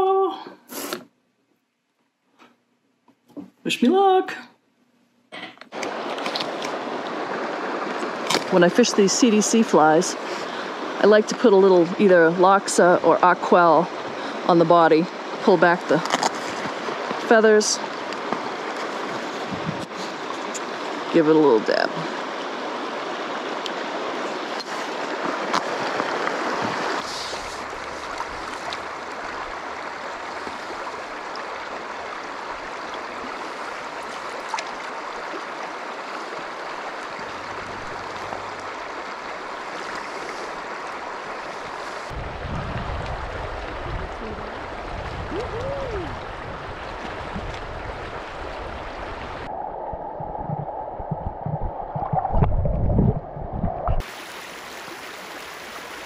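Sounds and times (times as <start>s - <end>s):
creek rushing over cobbles: 5.8s - 49.5s
water sloshing near microphone: 5.8s - 54.3s
muffled underwater sound: 43.0s - 46.6s, 49.2s - 54.0s.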